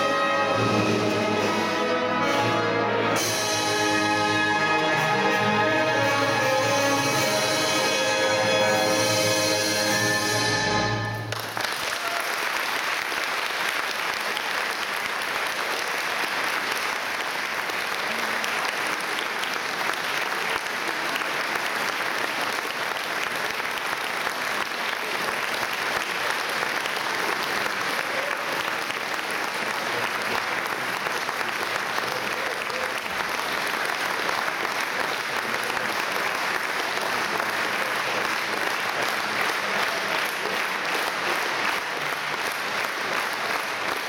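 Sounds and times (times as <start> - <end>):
orchestra chord: 0.0 - 11.4
audience applauding: 5.6 - 44.0.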